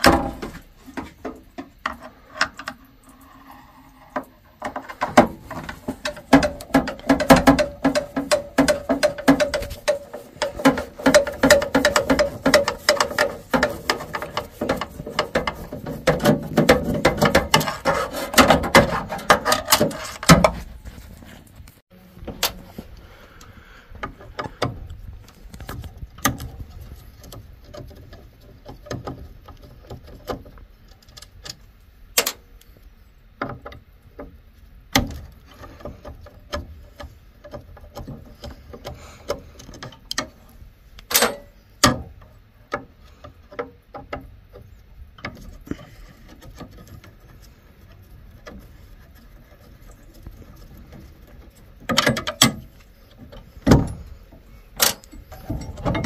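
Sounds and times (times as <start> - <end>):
metal clinks and knocks: 4.1 - 20.7, 49.4 - 56.0.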